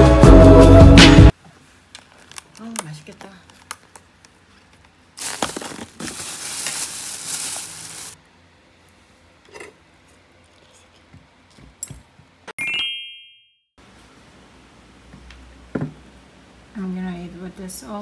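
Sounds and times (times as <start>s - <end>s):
plastic lid crinkling: 2.0s - 4.1s, 5.2s - 8.2s.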